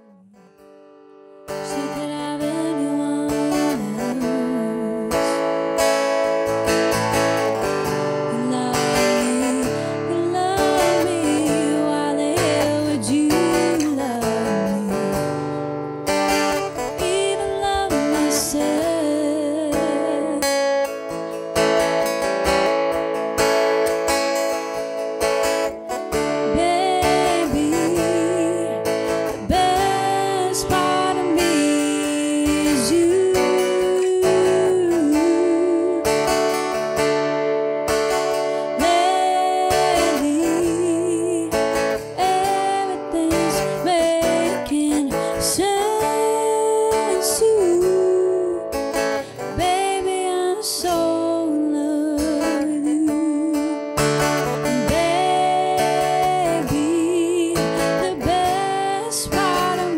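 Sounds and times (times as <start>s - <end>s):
acoustic guitar song: 0.0s - 59.9s.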